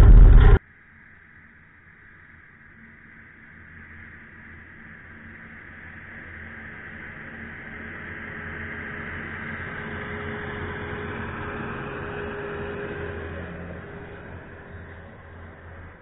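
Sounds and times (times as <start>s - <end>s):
semi truck passing: 0.0s - 0.6s, 7.6s - 16.0s.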